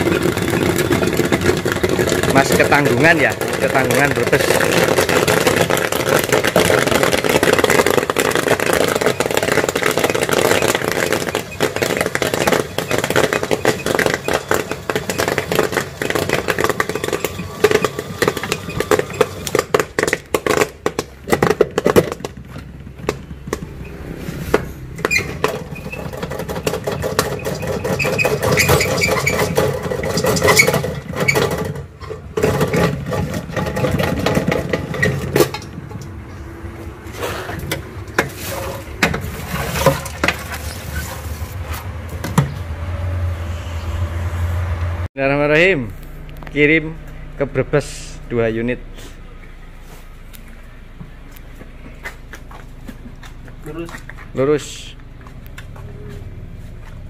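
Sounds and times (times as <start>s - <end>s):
popcorn kernels popping: 0.0s - 23.8s, 24.9s - 36.4s.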